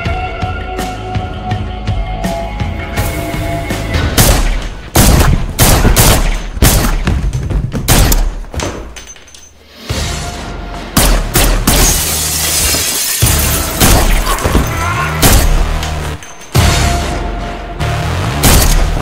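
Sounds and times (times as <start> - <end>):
gunshots echoing indoors: 4.1 - 7.2, 11.0 - 12.2, 13.7 - 16.5, 18.4 - 19.0.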